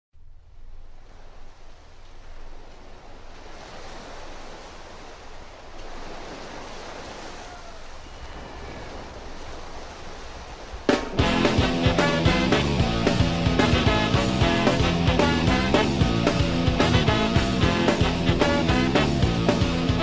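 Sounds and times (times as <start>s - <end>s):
faint gliding tones: 0.2s - 12.1s
ocean surf washing: 0.2s - 20.0s
band playing loudly: 10.9s - 20.0s.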